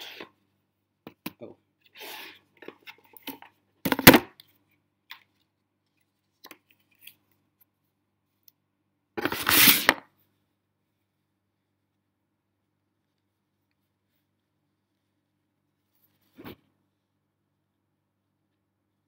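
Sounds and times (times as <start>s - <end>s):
cardboard packaging rustling: 9.2s - 10.0s.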